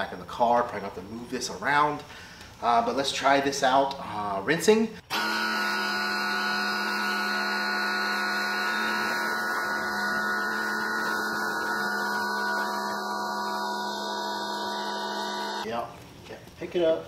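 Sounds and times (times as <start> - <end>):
pressure washer humming: 5.1 - 15.7.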